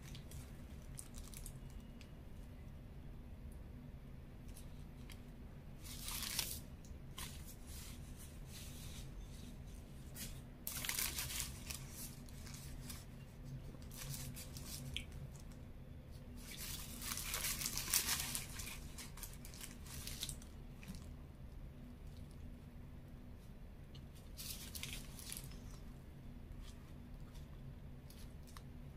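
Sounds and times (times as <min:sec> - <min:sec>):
paper wrapper crinkling: 0:00.0 - 0:02.0, 0:05.8 - 0:08.7, 0:10.2 - 0:15.6, 0:16.4 - 0:21.1, 0:24.2 - 0:25.8
steady low hum: 0:00.0 - 0:28.9.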